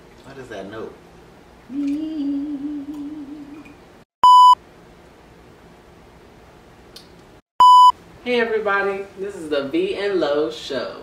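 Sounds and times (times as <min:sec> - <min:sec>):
short electronic bleeps: 0:04.2 - 0:04.6, 0:07.6 - 0:07.9.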